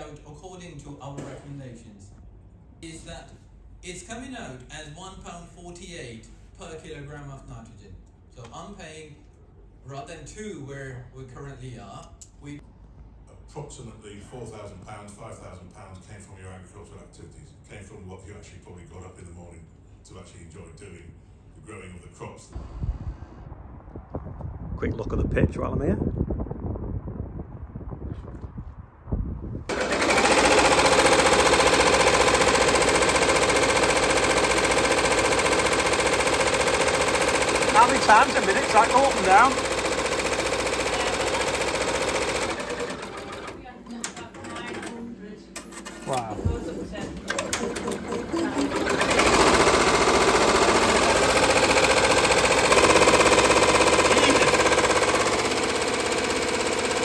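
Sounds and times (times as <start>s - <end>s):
faint wind: 22.6s - 29.7s
embroidery machine needle hammering: 29.7s - 44.8s, 47.2s - 57.0s.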